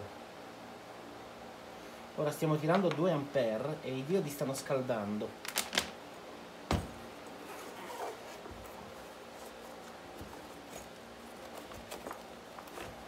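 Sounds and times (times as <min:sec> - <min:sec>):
low steady background hum: 0:00.0 - 0:13.0
objects handled on workbench: 0:06.7 - 0:13.0.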